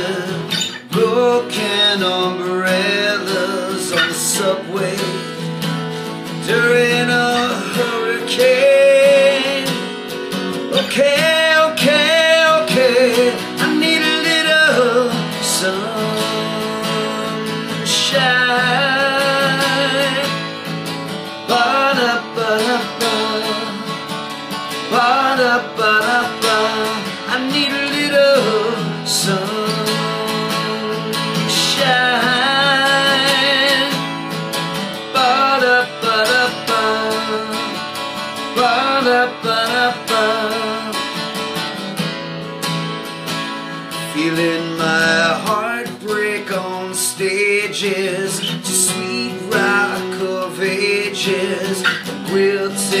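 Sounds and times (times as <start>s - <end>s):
man singing: 0.0s - 41.7s, 43.6s - 53.0s
strummed acoustic guitar: 0.0s - 53.0s.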